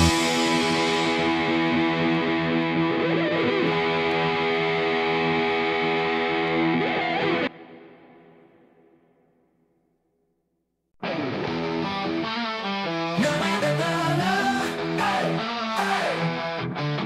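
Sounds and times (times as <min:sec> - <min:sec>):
ringing music chords: 0:00.0 - 0:06.7.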